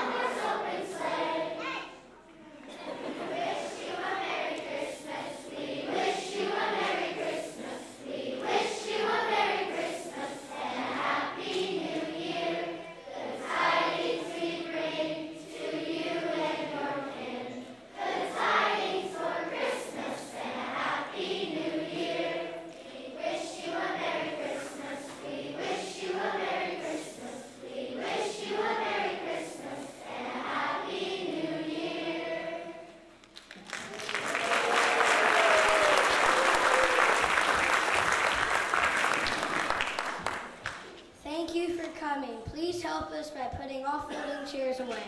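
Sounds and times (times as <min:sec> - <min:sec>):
children's chorus singing a carol: 0:00.0 - 0:33.3.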